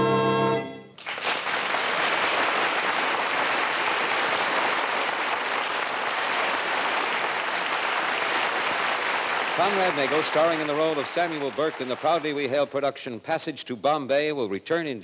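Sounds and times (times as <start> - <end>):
audience applause: 1.0 - 12.8.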